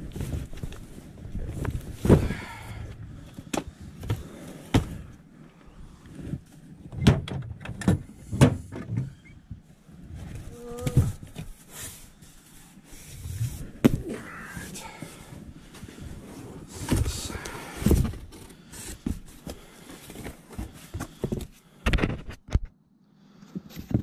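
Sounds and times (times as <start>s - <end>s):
boxes knocking and thudding: 1.5s - 5.2s, 6.9s - 9.1s, 13.6s - 14.2s, 16.7s - 22.3s.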